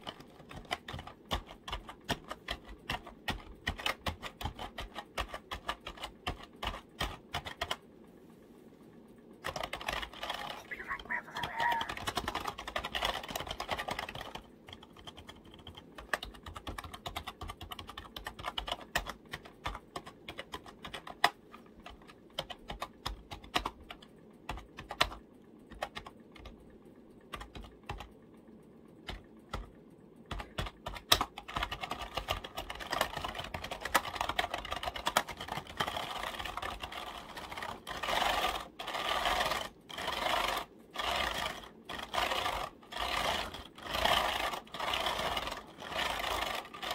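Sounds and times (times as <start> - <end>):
typing on computer keyboard: 0.0 - 7.8, 9.4 - 28.2, 29.0 - 46.9.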